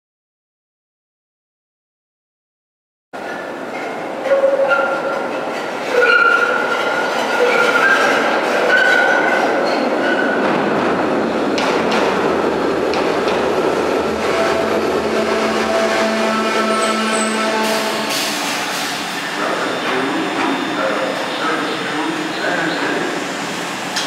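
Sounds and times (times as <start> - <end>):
low hum from railcar: 3.2 - 24.0
rumble of wheels on rail: 3.2 - 24.0
trolley wheels squealing: 5.8 - 10.4.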